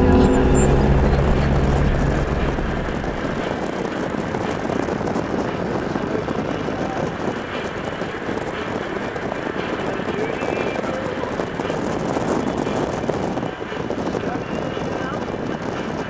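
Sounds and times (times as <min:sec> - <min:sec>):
low hum: 0:00.0 - 0:04.7
wind and road noise: 0:00.0 - 0:16.0.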